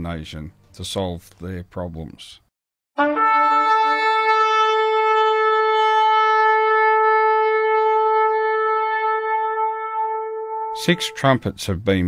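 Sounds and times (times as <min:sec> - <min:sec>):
long horn blast: 0:03.0 - 0:11.4.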